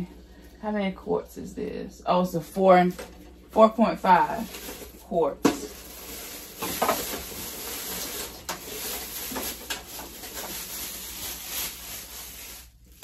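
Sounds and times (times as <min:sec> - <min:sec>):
plastic packaging rustling: 0:02.8 - 0:13.0.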